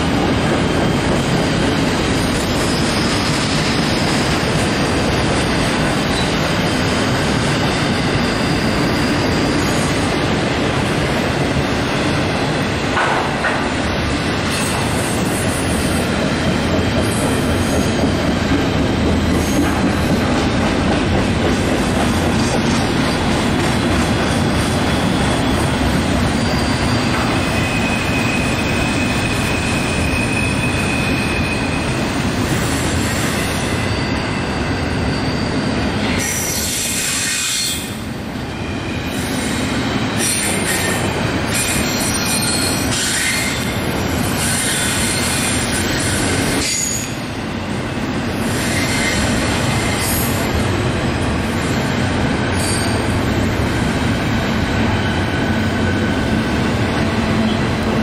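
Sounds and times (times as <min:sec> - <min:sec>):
freight train wheels rumbling: 0:00.0 - 0:58.0
high-pitched wheel squeal: 0:07.8 - 0:10.1, 0:24.6 - 0:32.0, 0:33.0 - 0:37.9, 0:52.5 - 0:53.1.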